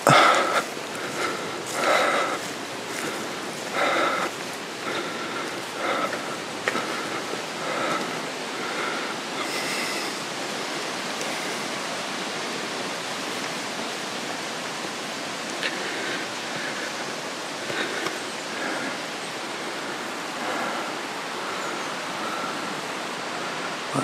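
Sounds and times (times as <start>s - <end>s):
running water in fountain: 0.0s - 24.0s.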